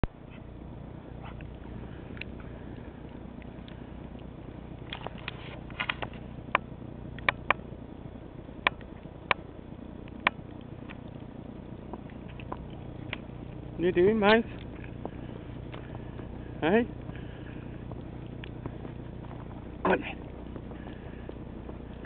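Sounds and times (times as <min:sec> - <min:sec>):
low outdoor rumble: 0:00.0 - 0:22.0.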